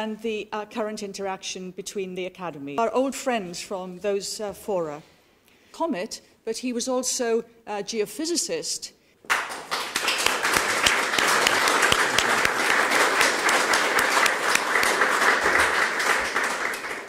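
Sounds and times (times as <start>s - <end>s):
audience applauding: 9.3s - 17.0s.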